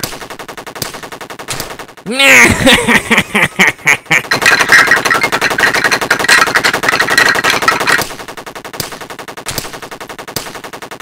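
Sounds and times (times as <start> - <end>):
machine-gun fire: 0.0 - 2.0, 4.2 - 11.0.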